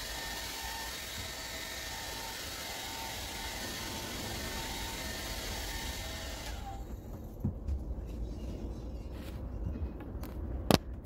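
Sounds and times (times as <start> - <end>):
hair dryer blowing: 0.0 - 6.8
soft bumps: 6.9 - 11.0.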